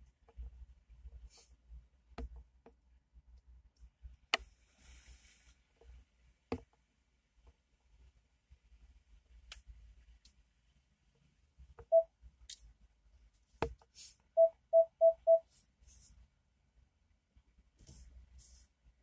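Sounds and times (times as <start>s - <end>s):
short electronic beeps: 14.4s - 15.5s.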